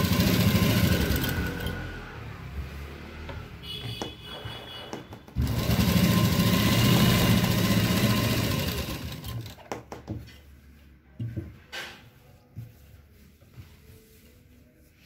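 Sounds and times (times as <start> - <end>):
sewing machine stitching: 0.0 - 1.9, 5.4 - 9.6.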